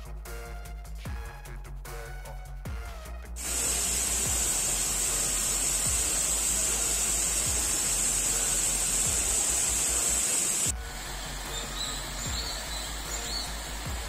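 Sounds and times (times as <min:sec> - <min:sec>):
slow background music: 0:00.0 - 0:14.0
waterfall rushing: 0:03.4 - 0:14.0.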